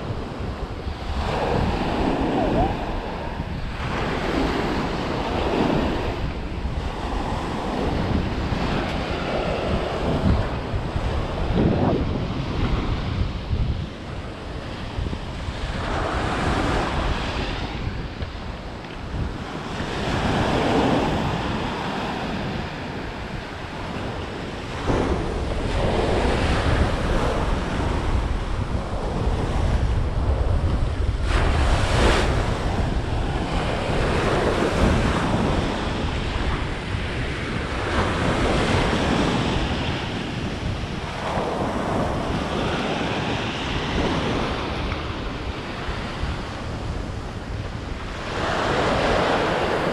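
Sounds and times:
ocean surf breaking: 0.0 - 49.9
wind rumbling on microphone: 0.0 - 49.9.

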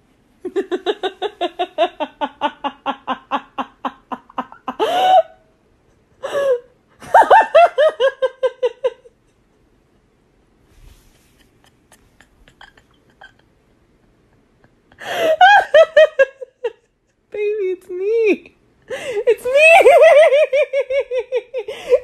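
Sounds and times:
person laughing hard: 0.5 - 5.4, 11.4 - 16.8.

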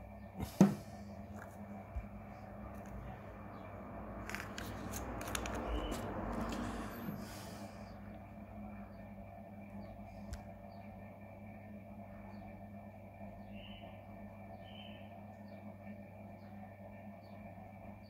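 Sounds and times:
low steady hum: 0.0 - 18.0
objects rustling on tabletop: 4.2 - 7.3.

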